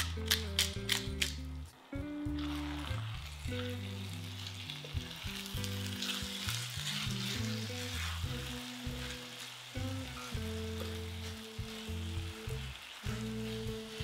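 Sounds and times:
meat sizzling in a frying pan: 0:02.3 - 0:14.0
spatula scraping a pan: 0:05.9 - 0:12.2.

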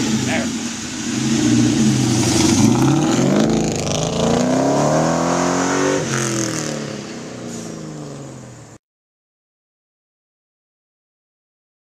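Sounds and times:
car engine accelerating hard: 0:00.0 - 0:08.8.

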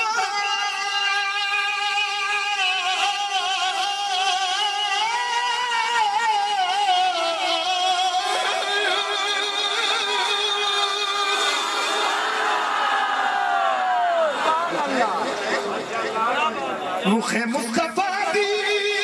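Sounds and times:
man singing through microphone: 0:00.0 - 0:12.1, 0:17.0 - 0:19.0.

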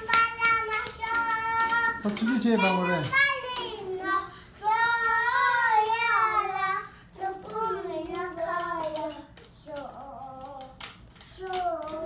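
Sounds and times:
young child singing: 0:00.0 - 0:12.0.

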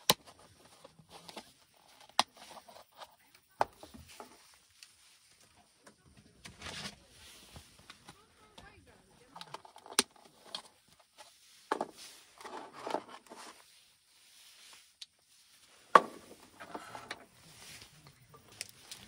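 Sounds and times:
soft rustling: 0:00.3 - 0:19.0
wood and metal clattering: 0:07.9 - 0:13.6, 0:15.8 - 0:17.4.

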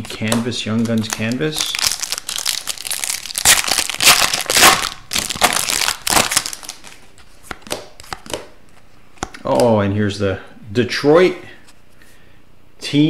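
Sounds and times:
foil wrapper crinkling: 0:00.0 - 0:07.0.

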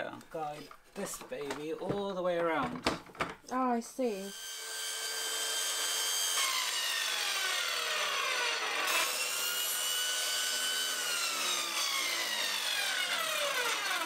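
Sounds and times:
circular saw cutting: 0:04.3 - 0:14.0.

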